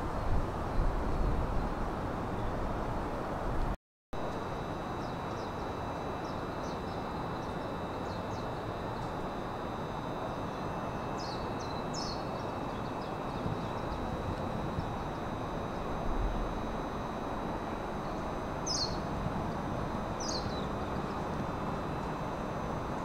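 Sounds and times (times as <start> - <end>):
faint high whine: 0.0 - 23.0
small birds chirping: 4.9 - 9.2, 10.2 - 15.9, 18.0 - 19.1, 20.2 - 21.3.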